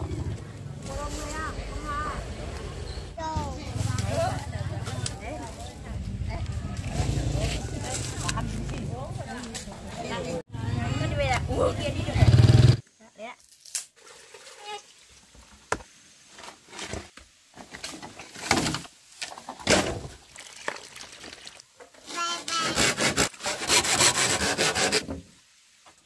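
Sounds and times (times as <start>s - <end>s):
blade cutting bamboo: 22.2s - 25.1s.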